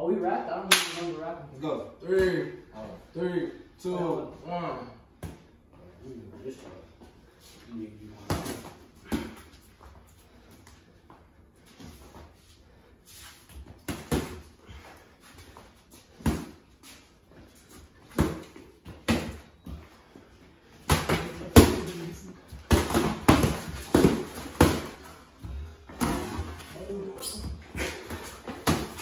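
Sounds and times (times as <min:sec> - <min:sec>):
boxing gloves punching: 0:20.8 - 0:25.2, 0:27.8 - 0:29.0.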